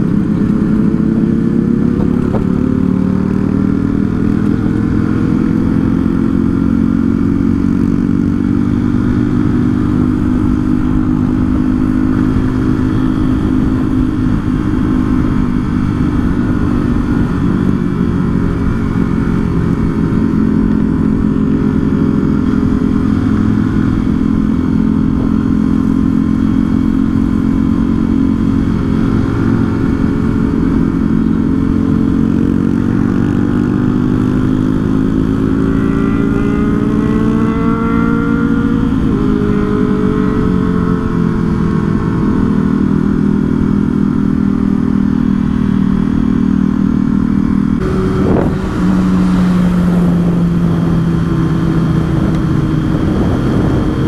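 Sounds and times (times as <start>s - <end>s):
motorcycle engine running: 0.0s - 54.0s
wind rumble on microphone: 34.8s - 54.0s.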